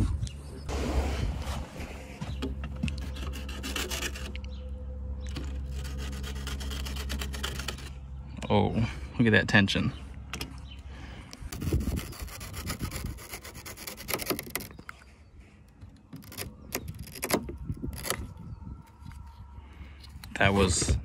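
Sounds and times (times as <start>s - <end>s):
knife sawing through strap: 3.0s - 4.4s, 5.6s - 7.9s, 11.5s - 14.8s.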